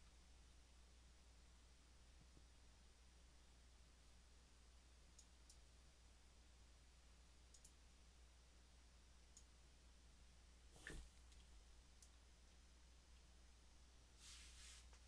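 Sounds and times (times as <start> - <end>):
computer mouse clicks: 7.5 - 7.8.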